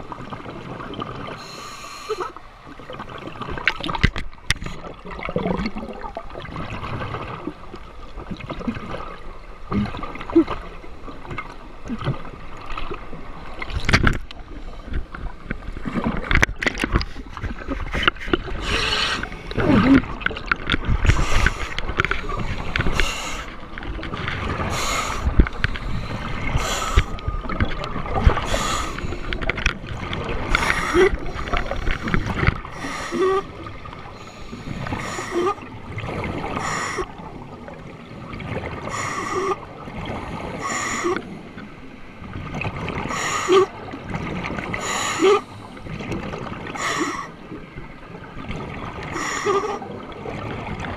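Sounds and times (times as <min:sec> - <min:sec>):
diver inhaling through regulator: 0:18.6 - 0:19.7, 0:21.1 - 0:21.8, 0:24.7 - 0:27.2, 0:28.4 - 0:29.3, 0:30.5 - 0:33.5, 0:36.6 - 0:37.1, 0:38.9 - 0:39.6, 0:40.5 - 0:41.4, 0:44.8 - 0:45.9, 0:46.8 - 0:47.4.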